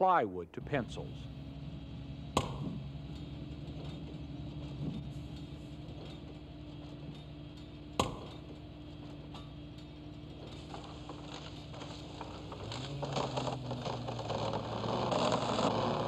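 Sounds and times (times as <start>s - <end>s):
low hum: 0.5s - 16.0s
axe chopping tree trunk: 2.4s - 2.8s, 8.0s - 8.4s.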